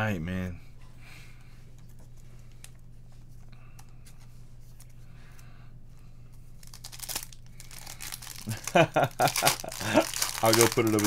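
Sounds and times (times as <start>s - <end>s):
cards and packaging rustling: 6.6s - 11.0s.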